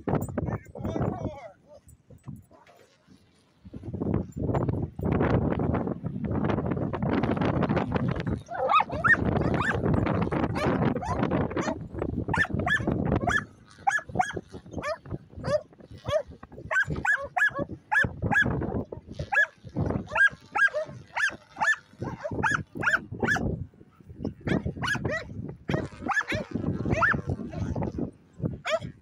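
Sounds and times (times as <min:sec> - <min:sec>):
dog yipping and barking: 0:08.4 - 0:09.8, 0:10.5 - 0:18.5, 0:19.3 - 0:23.5, 0:24.5 - 0:27.7, 0:28.6 - 0:28.9.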